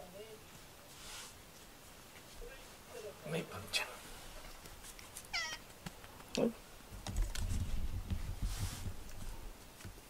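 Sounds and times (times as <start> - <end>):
cat rubbing against microphone: 7.4 - 9.4.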